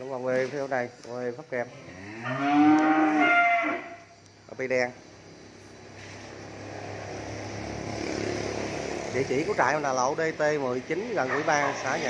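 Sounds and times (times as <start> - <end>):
cattle mooing: 1.8 - 4.0.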